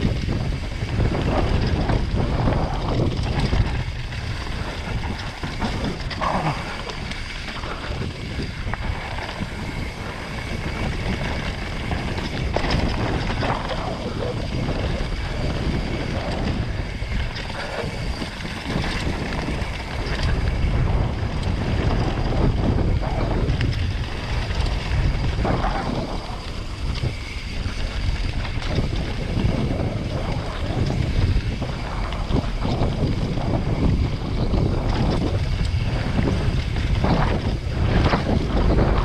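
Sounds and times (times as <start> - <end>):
bike knocks and rattles: 0.0 - 39.0
tyres rumbling over dirt and stones: 0.0 - 39.0
wind buffeting microphone: 0.0 - 39.0.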